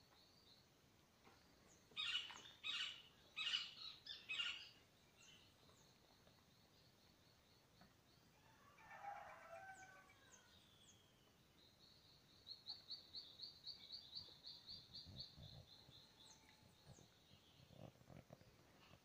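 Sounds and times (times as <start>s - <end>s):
high downslurred bird chirps: 1.9s - 5.9s.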